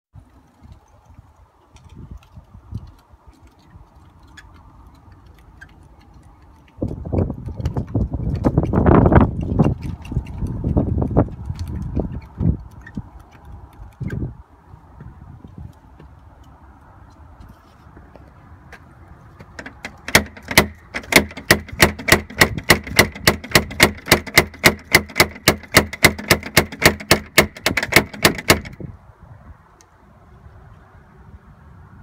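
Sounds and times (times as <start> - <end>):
knocking on a door: 20.1 - 28.8.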